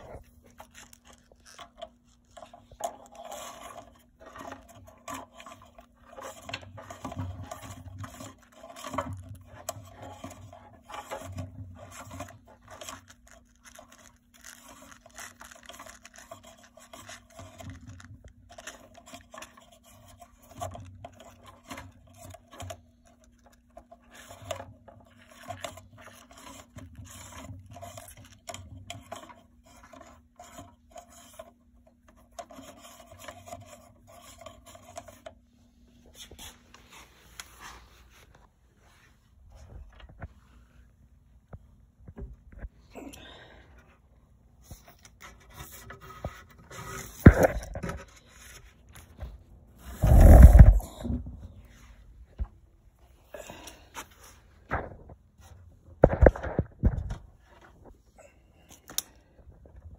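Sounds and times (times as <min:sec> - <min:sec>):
power cord scraping on concrete: 0:49.8 - 0:51.2.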